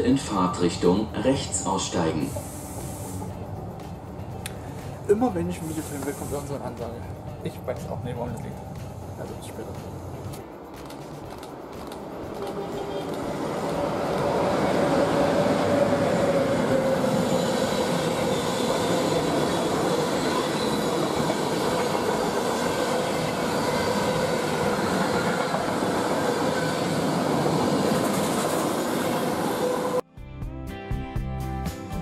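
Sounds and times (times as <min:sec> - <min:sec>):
train wheels rumbling on rail: 0:00.0 - 0:30.0.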